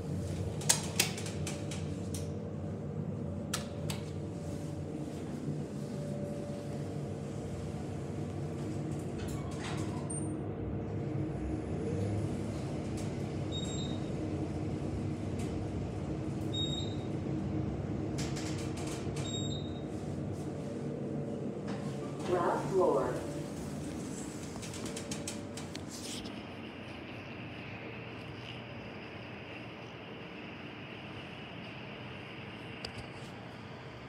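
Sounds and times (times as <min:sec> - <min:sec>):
elevator car hum: 0:00.0 - 0:34.0
elevator clicks: 0:00.5 - 0:02.3, 0:24.4 - 0:25.8.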